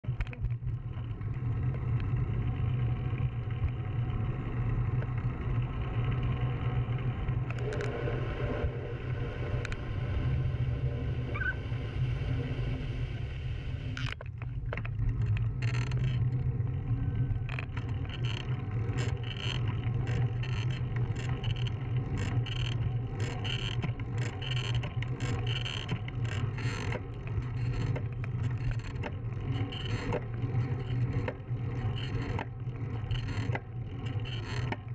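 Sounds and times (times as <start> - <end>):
bicycle tyre noise: 0.6 - 34.9
regular clicking: 14.0 - 16.5, 17.4 - 34.9.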